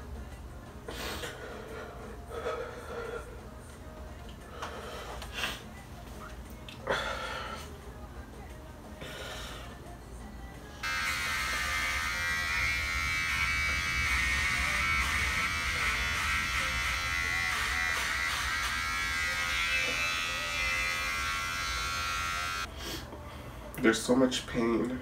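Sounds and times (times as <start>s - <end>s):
electric hair clippers buzzing: 10.8s - 22.7s.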